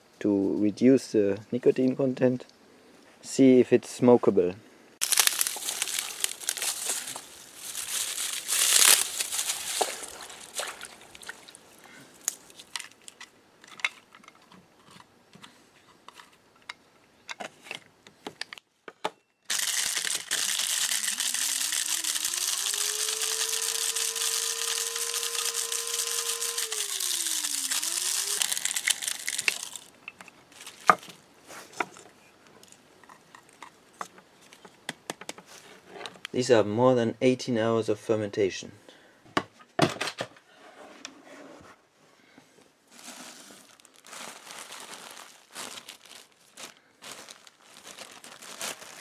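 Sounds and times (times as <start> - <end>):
wet leaves crinkling in water: 5.0 - 13.2, 19.5 - 22.5, 26.5 - 29.9, 30.5 - 31.2, 43.6 - 49.0
electric grinder grinding: 19.5 - 29.9.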